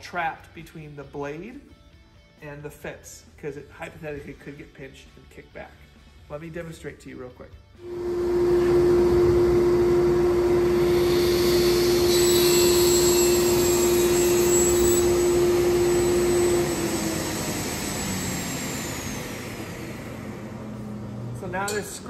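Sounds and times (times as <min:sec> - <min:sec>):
saw blade cutting board: 0:07.8 - 0:20.4
saw blade spinning down: 0:07.8 - 0:22.0
table saw humming: 0:07.8 - 0:22.0.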